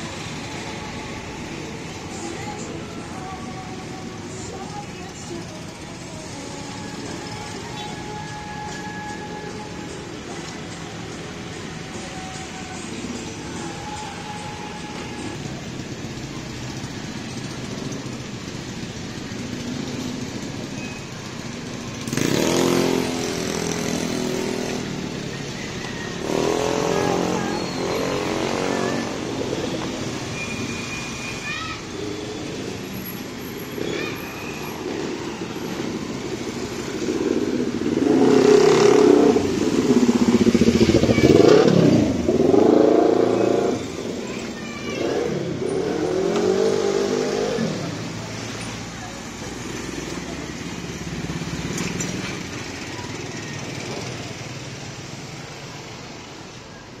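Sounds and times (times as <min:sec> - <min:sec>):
small motorcycles passing: 0:13.6 - 0:56.2.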